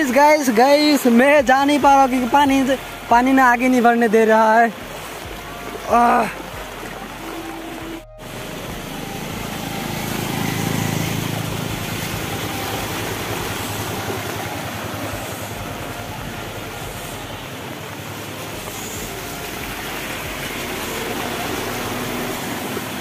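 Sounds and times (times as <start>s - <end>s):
floodwater splashing: 0.0s - 23.0s
motorbike engine running: 4.8s - 23.0s.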